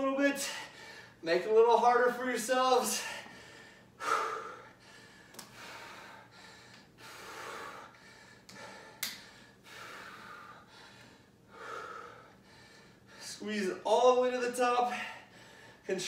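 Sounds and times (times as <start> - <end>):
man breathing heavily: 0.4 - 1.2, 2.8 - 13.6, 14.7 - 15.9.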